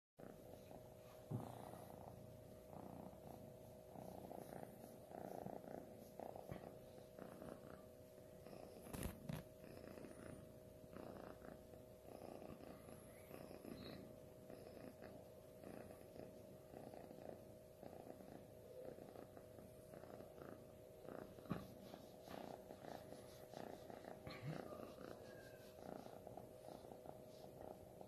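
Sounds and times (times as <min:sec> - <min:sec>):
kitten purring faintly: 0:00.2 - 0:28.0.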